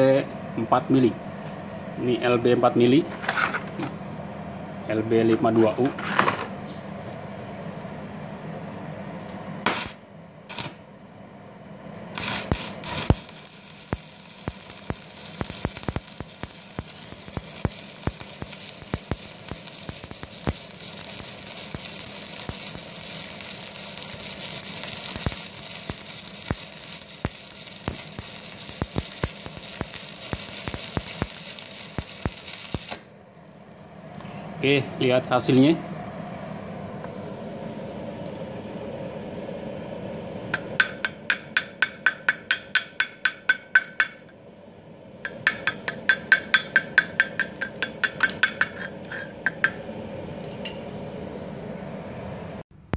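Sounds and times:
welding arc crackling and sizzling: 0:09.6 - 0:10.9, 0:12.0 - 0:35.2, 0:45.3 - 0:49.9.

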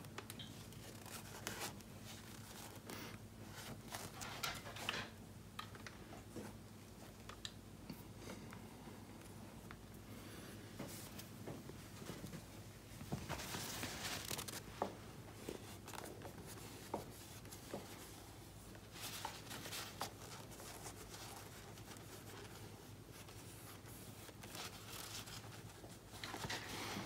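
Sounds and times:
plastic rubbing and rustling: 0:00.0 - 0:05.2, 0:10.8 - 0:27.0.

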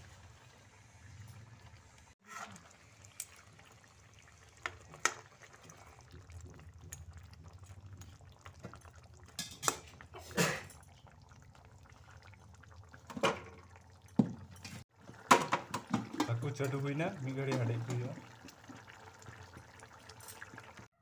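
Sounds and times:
curry simmering in a pan: 0:00.0 - 0:21.0
cookware clinking: 0:09.3 - 0:10.0.

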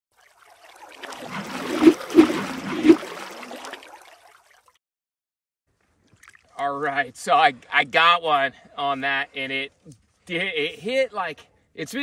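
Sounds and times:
water splashing and gurgling: 0:00.1 - 0:04.8.

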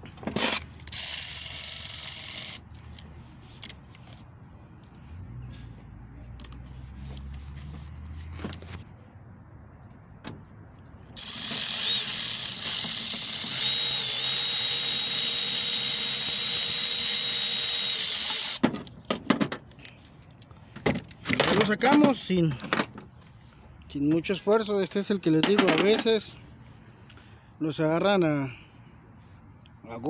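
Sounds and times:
electric ratchet whining: 0:00.4 - 0:02.6, 0:11.2 - 0:18.6.

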